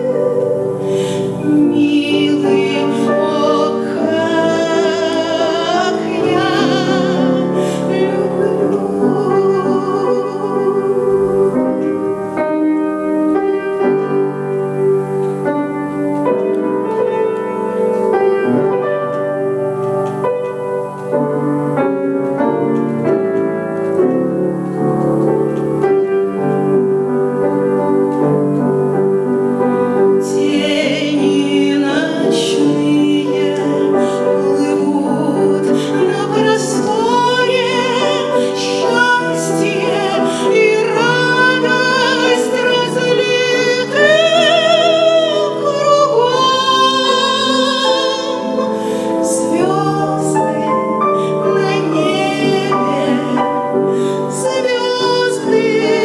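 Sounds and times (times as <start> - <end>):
woman singing with vibrato: 0.0 - 12.2, 30.2 - 56.0
grand piano accompaniment: 0.0 - 56.0.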